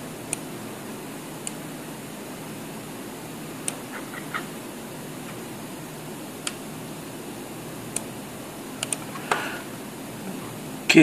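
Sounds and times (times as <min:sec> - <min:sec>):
room hiss: 0:00.0 - 0:11.0
computer mouse clicks: 0:03.6 - 0:04.5, 0:08.8 - 0:09.1.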